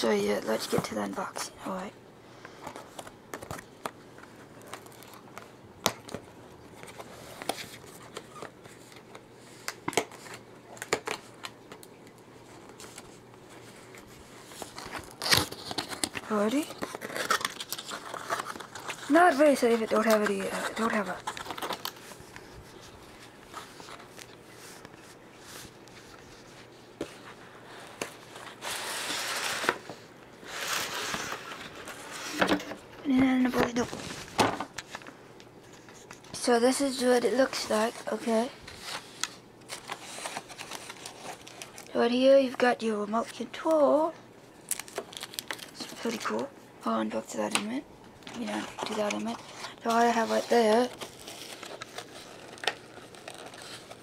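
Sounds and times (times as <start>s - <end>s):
cardboard rustling and scraping: 12.4s - 35.1s, 35.7s - 41.9s, 48.2s - 54.0s.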